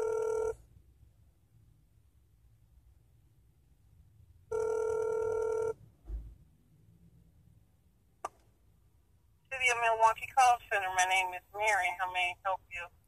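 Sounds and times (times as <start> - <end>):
phone ringback tone: 0.0 - 0.6, 4.5 - 5.8
soft low thump: 6.0 - 6.4.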